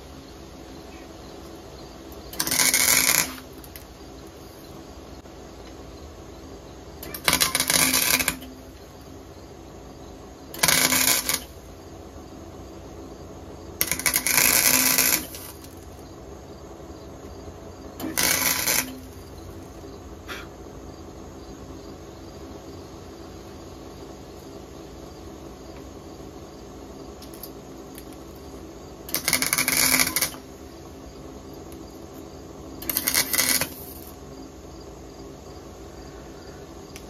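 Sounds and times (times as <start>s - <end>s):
arc welder crackling: 1.4s - 4.4s, 7.0s - 9.2s, 10.4s - 11.9s, 13.6s - 16.1s, 17.3s - 20.4s, 27.2s - 34.3s.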